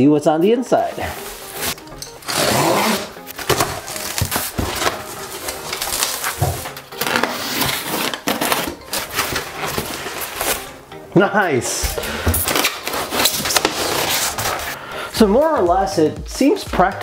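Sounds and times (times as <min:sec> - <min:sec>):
cardboard rustling: 0:00.9 - 0:10.8, 0:11.7 - 0:14.8
plastic wrap crackling: 0:01.0 - 0:10.7, 0:12.2 - 0:14.8.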